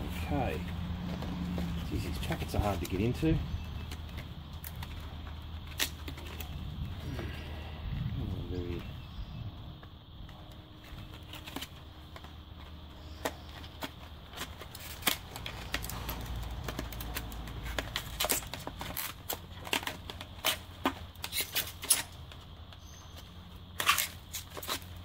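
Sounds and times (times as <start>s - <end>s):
plastic packaging crinkling and tearing: 10.8s - 22.4s, 23.7s - 25.0s.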